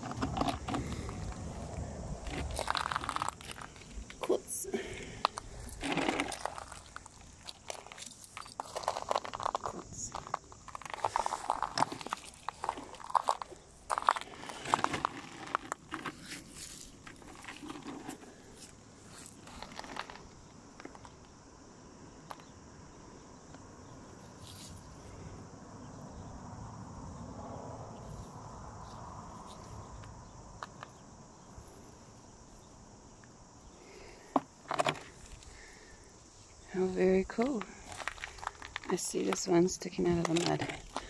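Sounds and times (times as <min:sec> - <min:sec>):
shells crunching underfoot: 0:00.0 - 0:21.3, 0:33.8 - 0:41.0
high insect buzz: 0:00.8 - 0:40.1.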